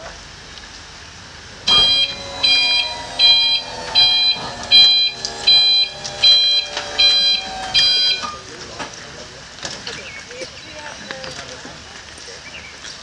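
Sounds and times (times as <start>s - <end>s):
faint hum sliding down in pitch: 1.6s - 8.4s
electronic warning beeper: 1.7s - 8.4s.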